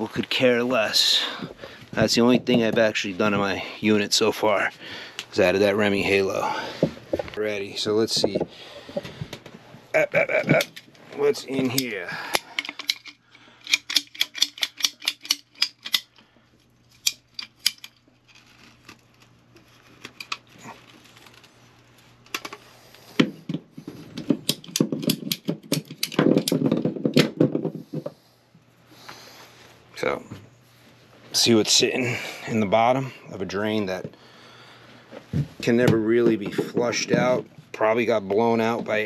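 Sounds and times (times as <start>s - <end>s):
plastic pipe rustling and knocking: 1.3s - 3.6s, 6.6s - 13.1s, 22.2s - 28.2s, 35.1s - 39.0s
ratcheting pipe cutter clicks: 11.7s - 16.2s.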